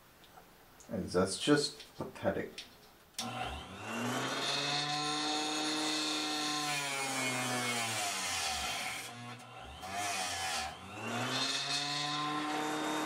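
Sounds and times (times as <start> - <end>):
small table saw whining: 3.2 - 13.0.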